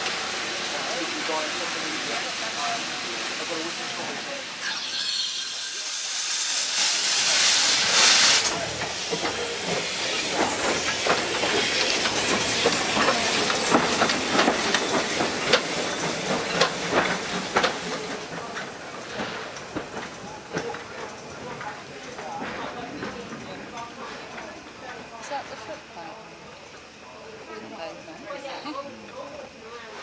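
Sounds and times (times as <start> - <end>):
steam locomotive hissing steam: 0.0 - 28.8
train wheels clicking and clanking: 7.1 - 25.3.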